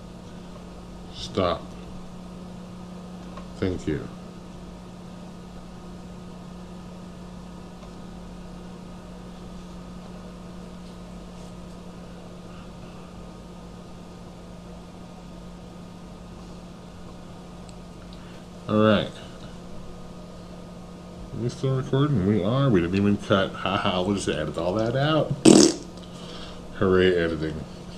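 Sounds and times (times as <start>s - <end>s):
even hiss: 25.5s - 25.9s.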